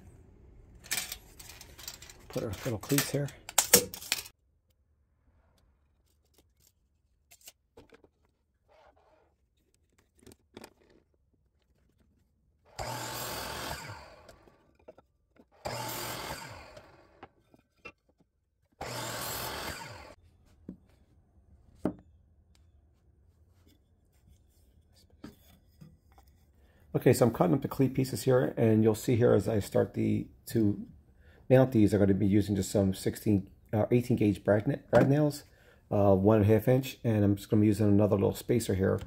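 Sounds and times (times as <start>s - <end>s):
power saw cutting wood: 12.7s - 14.7s, 15.5s - 17.4s, 18.8s - 20.2s.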